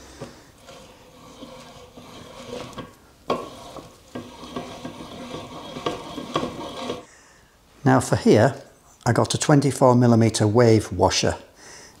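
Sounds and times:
metal parts scraping: 0.6 - 7.1.

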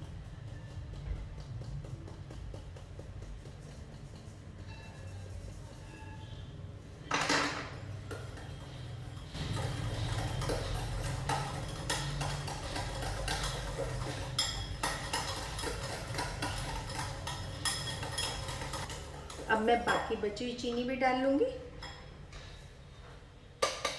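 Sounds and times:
wire whisk clinking in metal bowl: 9.5 - 19.6.

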